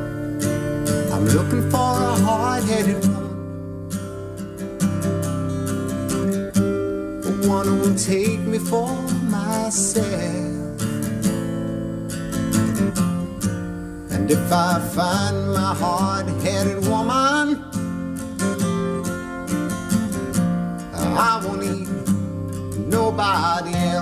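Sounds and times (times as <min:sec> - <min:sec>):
acoustic guitar strumming: 0:00.0 - 0:24.0
man singing: 0:01.0 - 0:03.5, 0:07.2 - 0:10.8, 0:14.1 - 0:17.8, 0:20.9 - 0:24.0.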